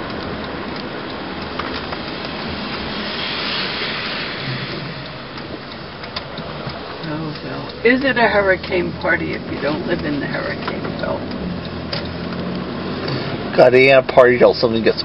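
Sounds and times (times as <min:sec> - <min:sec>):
car engine running: 0:00.0 - 0:15.0
tyres rushing on road: 0:00.0 - 0:15.0
hiss: 0:02.6 - 0:05.2.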